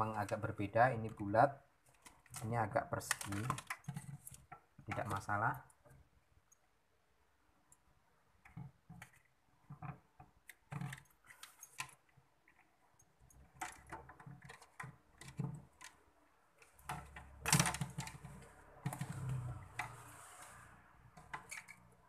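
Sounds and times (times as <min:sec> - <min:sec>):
hands clicking plastic connectors: 0:01.9 - 0:05.3.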